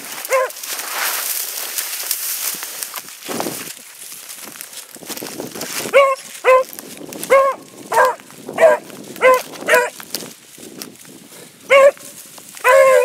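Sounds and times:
dog barking: 0:00.3 - 0:00.6, 0:05.9 - 0:06.7, 0:07.3 - 0:10.0, 0:11.7 - 0:13.0.

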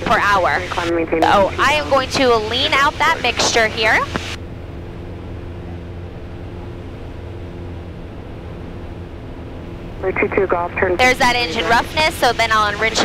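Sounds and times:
aircraft engine and propeller droning: 0:00.0 - 0:13.0.

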